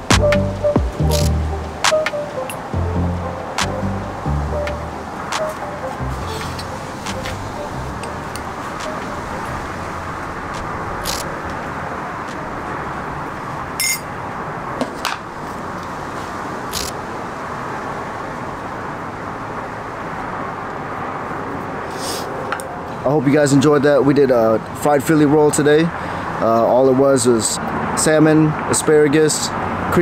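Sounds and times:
outdoor background hiss: 0.0s - 30.0s
sharp clicks: 1.0s - 2.6s, 10.5s - 11.4s.

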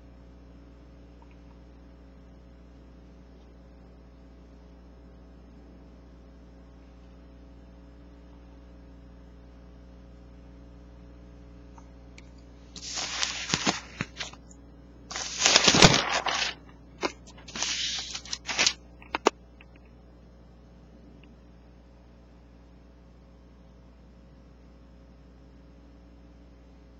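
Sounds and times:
faint steady hum: 0.0s - 26.9s
paper rustling and crinkling: 12.8s - 14.4s, 15.1s - 19.3s.

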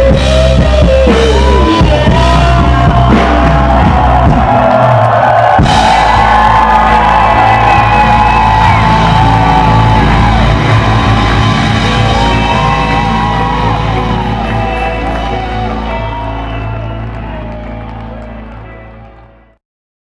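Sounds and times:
live rock band playing: 0.0s - 19.3s.

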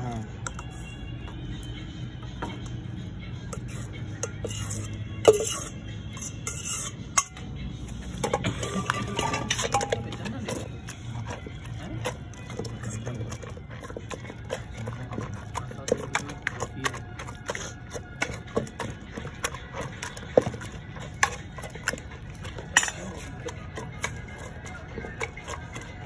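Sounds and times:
hand masher knocking on a metal pot: 8.3s - 26.0s.

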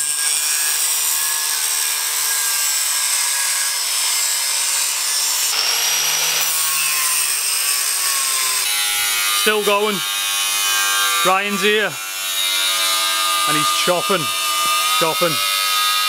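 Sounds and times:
grinder motor whine: 0.0s - 16.0s
disc rasping through metal: 3.6s - 16.0s.

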